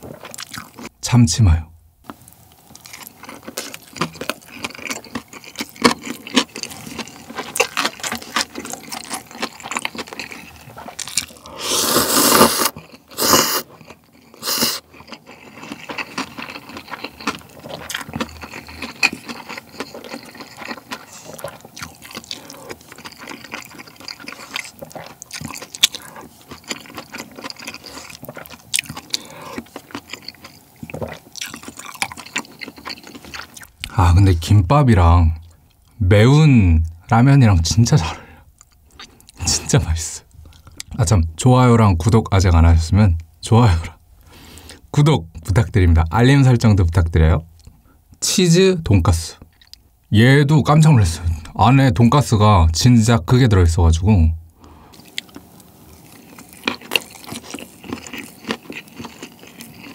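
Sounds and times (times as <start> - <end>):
close chewing: 2.6 - 34.0, 54.6 - 59.9
slurping noodles: 11.4 - 16.9.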